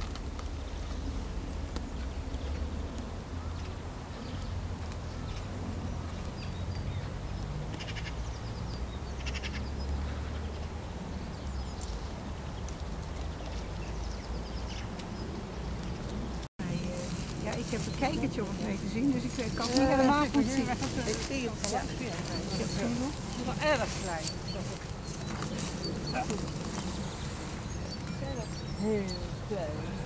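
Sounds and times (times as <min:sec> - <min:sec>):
twigs rustling and crackling: 0:00.0 - 0:06.4, 0:14.8 - 0:28.8
wind rumbling on microphone: 0:00.0 - 0:30.0.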